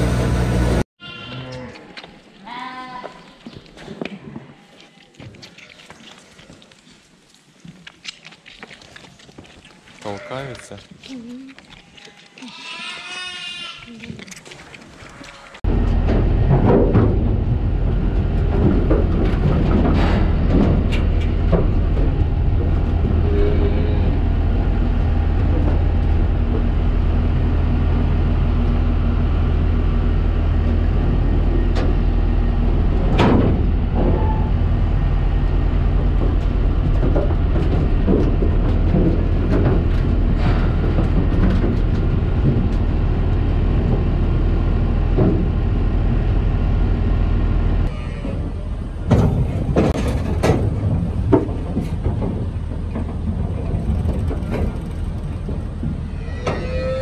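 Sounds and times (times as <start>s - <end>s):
machine drone: 0.0s - 0.9s, 15.7s - 47.9s, 48.6s - 57.0s
knocks and clatters: 15.7s - 23.3s, 35.6s - 44.3s, 49.0s - 56.7s.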